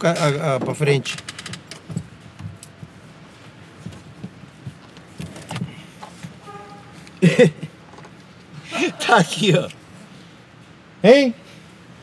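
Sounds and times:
small clicks and knocks: 0.6s - 2.8s.

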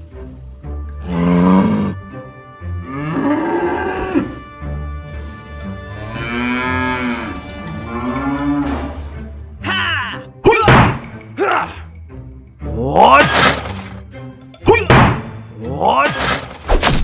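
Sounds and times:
background music: 0.0s - 17.0s
cow mooing: 2.8s - 4.5s, 5.8s - 9.2s.

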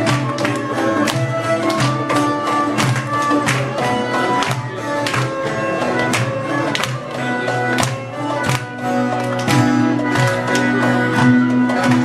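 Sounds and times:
frame drum beat: 0.0s - 12.0s
string instrument melody: 0.0s - 12.0s.

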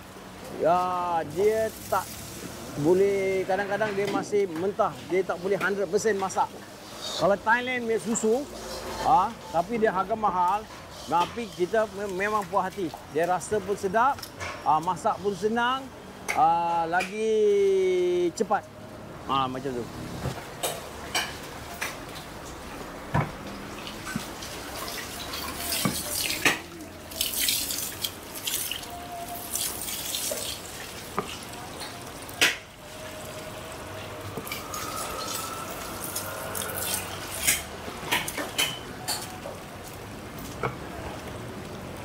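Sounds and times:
liquid pouring from hose into pot: 1.3s - 2.8s, 23.8s - 31.6s, 32.8s - 37.7s.

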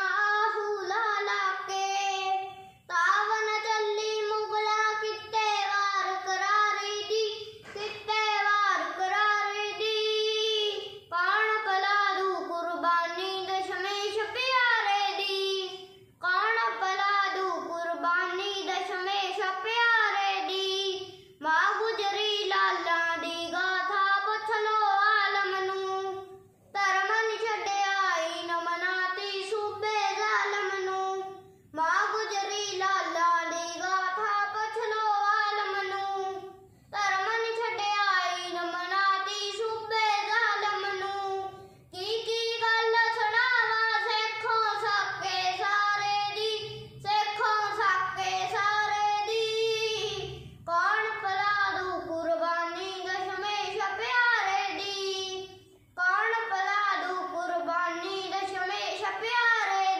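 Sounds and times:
young boy singing: 0.0s - 59.9s.

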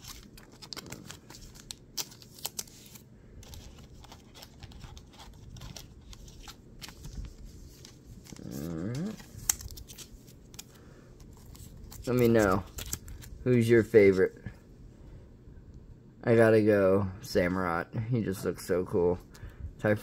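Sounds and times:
cards and packs clicking and rustling: 0.0s - 13.9s.

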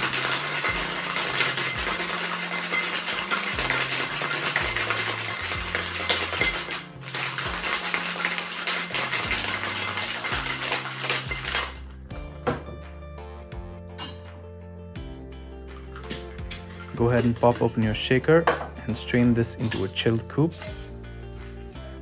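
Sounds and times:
ice rattling in cocktail shaker: 0.0s - 11.9s, 15.8s - 18.2s, 19.1s - 20.9s
background music: 0.0s - 22.0s.

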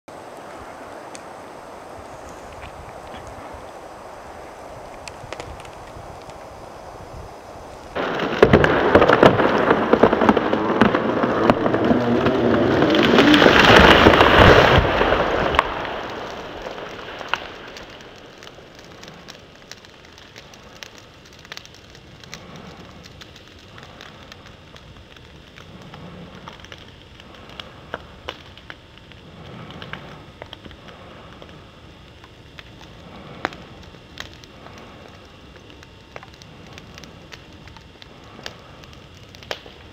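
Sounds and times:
debris crackling and dropping: 7.9s - 24.4s
branches snapping and crashing: 8.0s - 21.8s
tree breaking and falling: 8.0s - 22.8s.

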